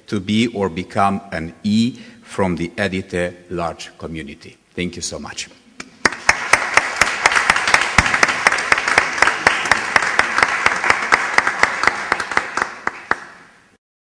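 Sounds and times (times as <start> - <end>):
sharp close hand claps: 5.8 - 13.5
audience applause: 6.0 - 13.5.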